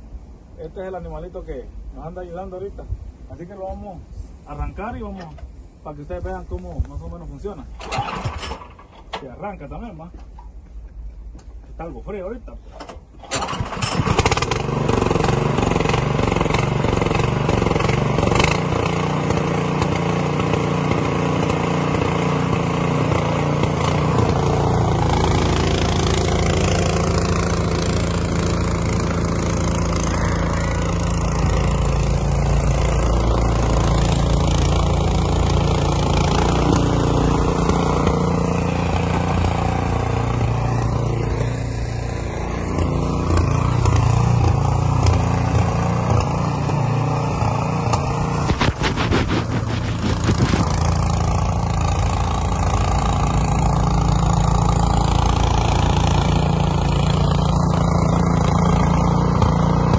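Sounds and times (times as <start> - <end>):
snowblower engine running: 13.2 - 59.9.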